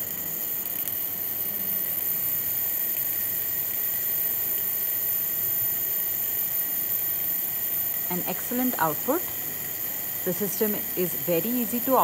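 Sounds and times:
high-pitched whines: 6.3s - 12.0s.

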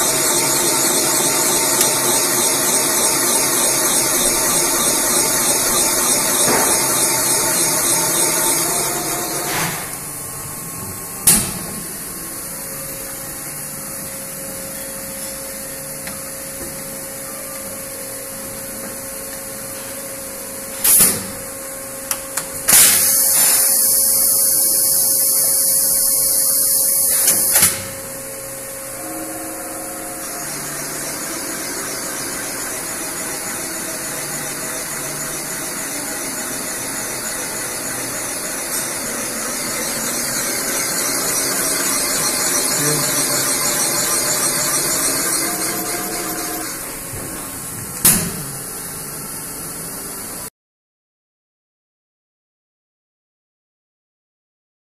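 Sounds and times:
valve seat cutter spindle running: 0.0s - 13.6s, 23.0s - 27.6s, 28.6s - 47.6s.

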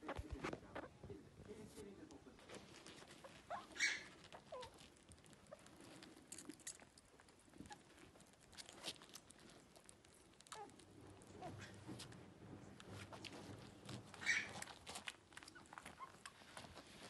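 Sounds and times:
animals suckling clicks and rustling: 1.5s - 17.0s
high squeaks from young animals: 3.0s - 4.8s, 13.9s - 16.4s.

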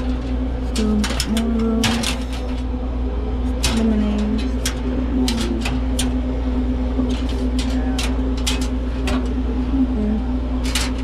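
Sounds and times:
metallic clicks and rattles: 0.0s - 2.7s, 3.5s - 6.2s, 7.0s - 9.4s
steady low hum: 0.0s - 11.0s.

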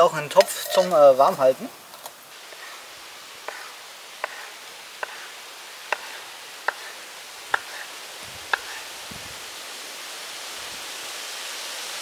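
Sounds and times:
knife chopping on wooden board: 3.5s - 5.2s, 5.9s - 6.9s, 7.5s - 7.8s, 8.5s - 8.8s.

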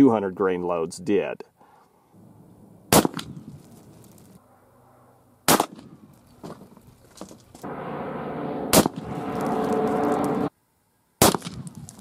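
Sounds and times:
rifle shot: 2.9s - 3.4s, 5.5s - 6.0s, 8.7s - 9.6s, 11.2s - 11.9s
steady rushing noise: 7.6s - 10.5s.

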